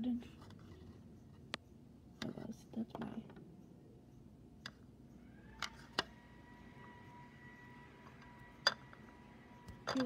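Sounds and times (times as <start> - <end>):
modelling clay clicks: 1.4 - 6.1.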